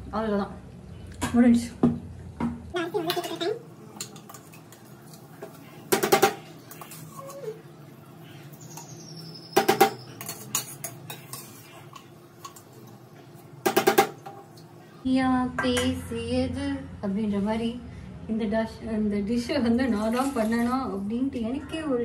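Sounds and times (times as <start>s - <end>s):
metal cookware clattering: 2.8s - 7.6s, 8.6s - 14.5s.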